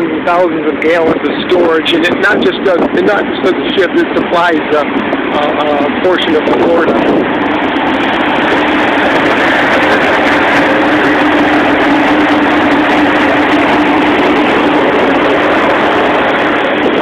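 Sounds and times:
loud machinery hum: 0.0 - 17.0.

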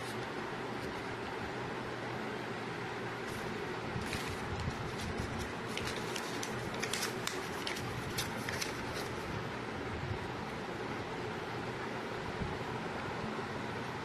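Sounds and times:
paper and plastic crinkling: 4.0 - 9.2.

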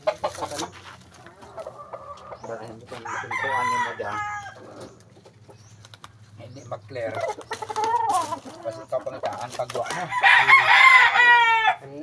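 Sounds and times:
rooster crowing: 3.0 - 4.8, 9.8 - 11.9.

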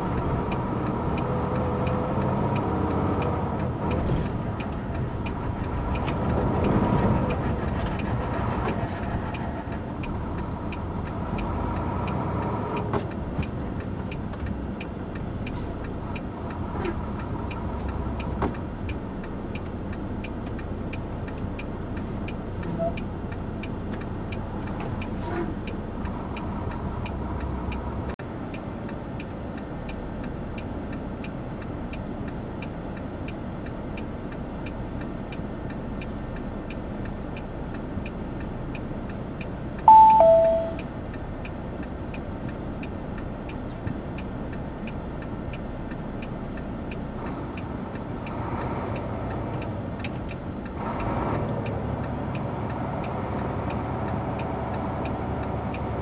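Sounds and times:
truck engine and road drone: 0.0 - 56.0
light ticking: 12.8 - 56.0.

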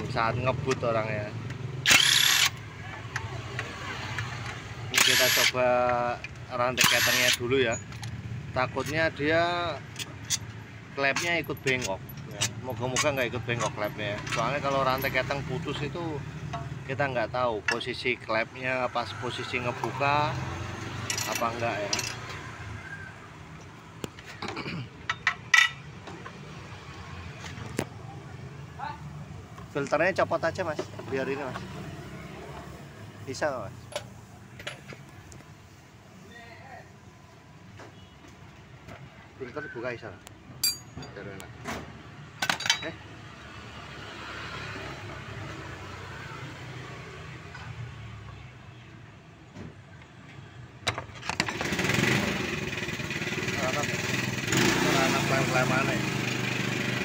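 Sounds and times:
metal tools clinking: 6.8 - 8.2, 9.9 - 15.4, 21.0 - 22.4, 24.2 - 25.9, 40.6 - 41.3, 42.4 - 43.0.

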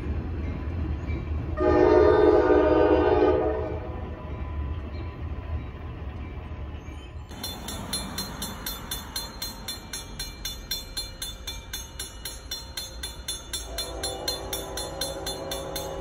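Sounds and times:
low train rumble: 0.0 - 16.0
crossing warning bell ringing: 3.9 - 16.0.

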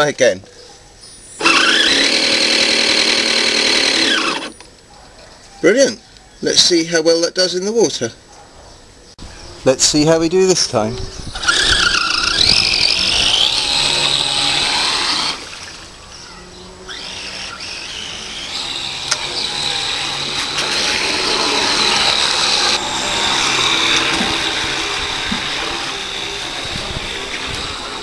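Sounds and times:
model boat electric motor whining: 1.4 - 4.6, 11.3 - 15.5, 16.4 - 28.0.

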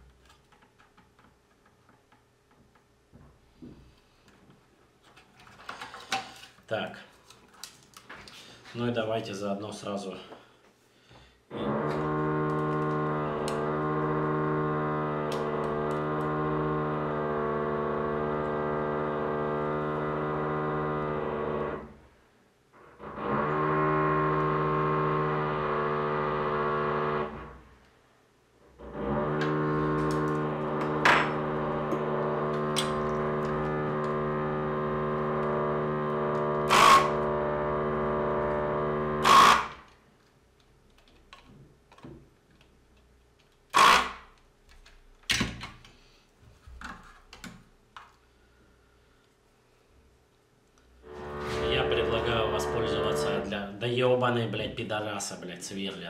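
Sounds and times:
muffled power drill buzzing: 11.5 - 21.9, 23.0 - 27.6, 28.8 - 39.9, 43.7 - 44.2, 51.0 - 53.5.

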